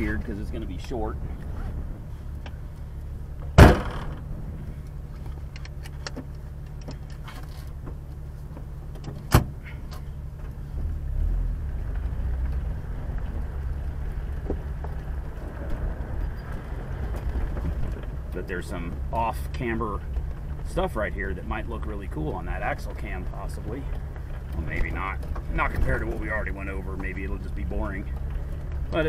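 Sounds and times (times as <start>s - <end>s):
off-road vehicle engine running: 0.0s - 29.0s
sharp knocks: 3.4s - 4.3s.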